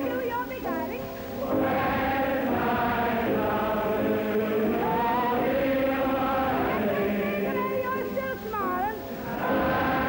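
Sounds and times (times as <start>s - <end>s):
woman singing: 0.0s - 1.2s, 6.6s - 9.0s
voices singing along: 0.0s - 10.0s.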